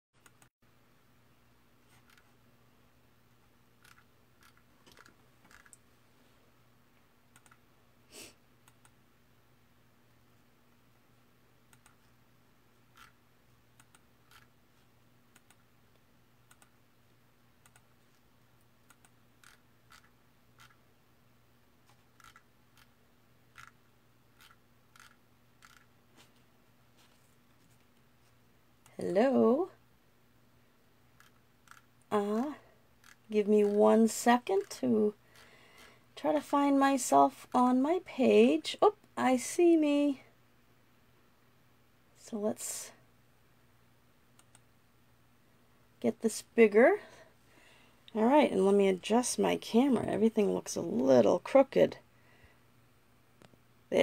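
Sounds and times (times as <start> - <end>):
low steady hum: 0.2 - 54.0
computer keyboard clicking: 7.3 - 7.6, 24.4 - 25.9.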